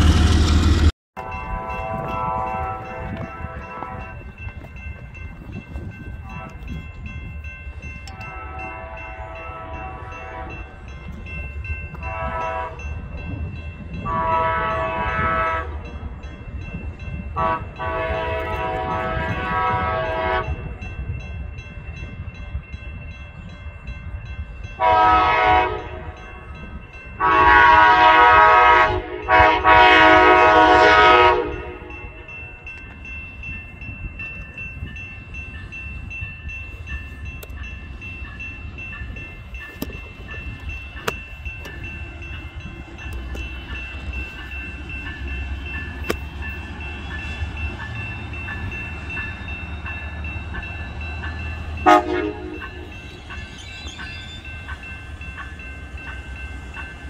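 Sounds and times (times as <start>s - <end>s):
train air horn blasts: 1.2s - 4.2s, 8.1s - 10.7s, 12.0s - 12.9s, 14.0s - 15.8s, 17.4s - 20.6s, 24.8s - 26.2s, 27.2s - 32.2s, 51.8s - 52.9s.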